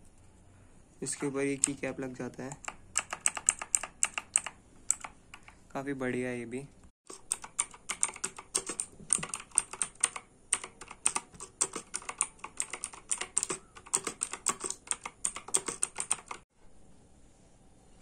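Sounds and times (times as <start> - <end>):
mechanical keyboard typing clicks: 1.1 - 5.6, 7.1 - 16.4.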